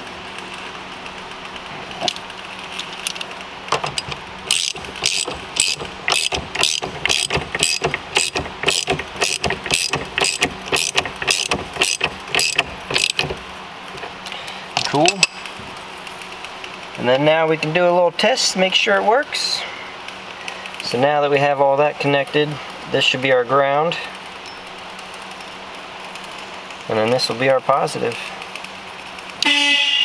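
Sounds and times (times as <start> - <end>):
ratchet pawl clicking: 2.7 - 13.5.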